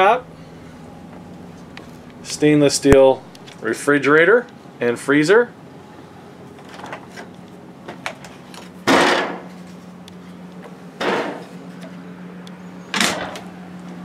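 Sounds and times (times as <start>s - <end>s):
faint steady hum: 0.0s - 14.0s
refrigerator doors clunking shut: 12.9s - 13.5s.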